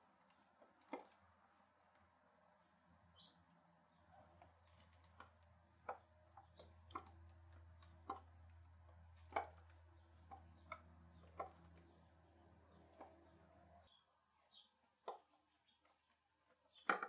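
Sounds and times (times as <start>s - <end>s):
faint low hum: 0.0s - 16.9s.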